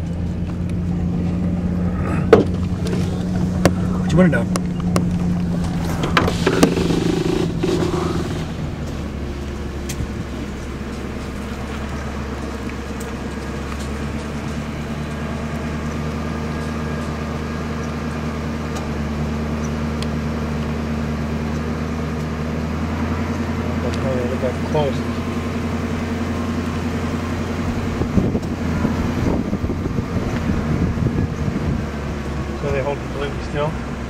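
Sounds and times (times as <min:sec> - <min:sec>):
vehicle engine idling: 0:00.0 - 0:34.0.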